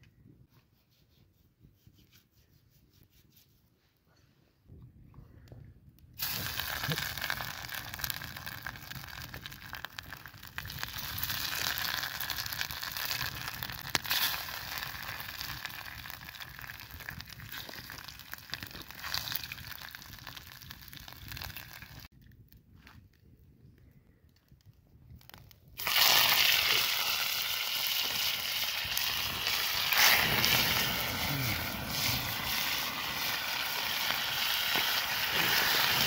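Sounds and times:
fish sizzling in hot oil: 0:06.2 - 0:22.1, 0:25.8 - 0:36.0
oil popping and crackling: 0:06.2 - 0:23.2, 0:24.4 - 0:36.0.

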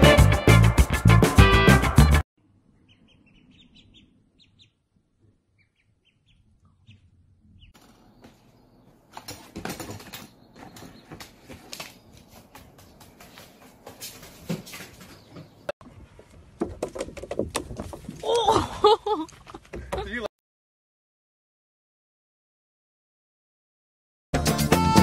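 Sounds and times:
ducklings peeping: 0:02.7 - 0:09.0, 0:10.3 - 0:11.4.

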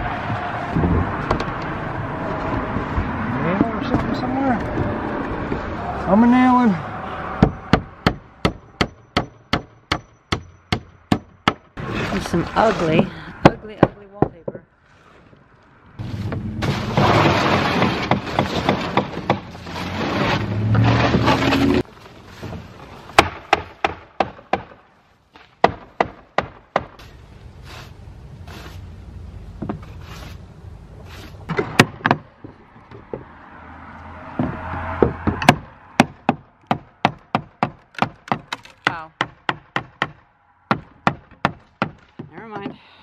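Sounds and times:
hammer driving nails into wood: 0:35.2 - 0:42.8.

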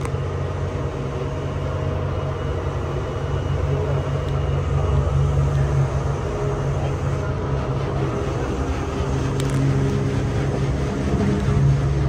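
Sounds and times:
boat engines droning: 0:00.0 - 0:12.0
water wash: 0:00.0 - 0:12.0
wind: 0:00.0 - 0:12.0.

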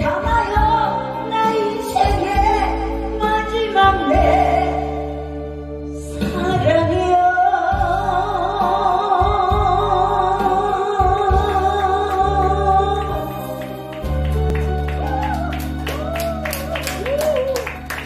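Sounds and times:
woman singing into microphone: 0:00.0 - 0:14.1
music with steady bass: 0:00.0 - 0:18.0.

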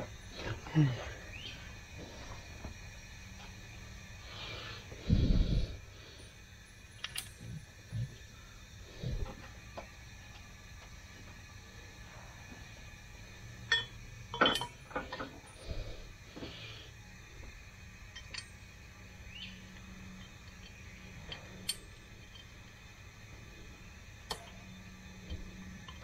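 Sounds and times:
low steady hum: 0:00.0 - 0:26.0
metal clinks and taps: 0:07.0 - 0:07.4, 0:13.7 - 0:15.2.

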